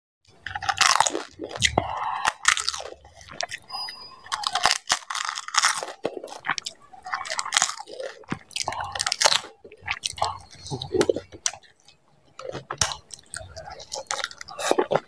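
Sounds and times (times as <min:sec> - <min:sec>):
crunchy chewing: 0:00.3 - 0:15.0
crisp shell cracking: 0:04.3 - 0:09.6.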